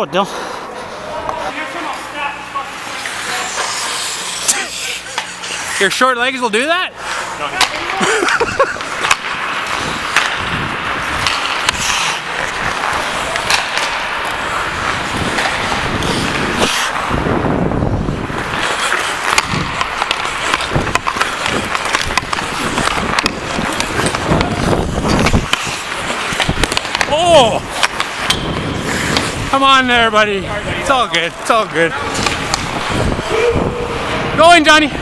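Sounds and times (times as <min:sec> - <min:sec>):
skate blades scraping ice: 0:00.4 - 0:35.0
sticks and puck clicking: 0:07.5 - 0:17.0, 0:18.3 - 0:29.6, 0:31.3 - 0:33.0.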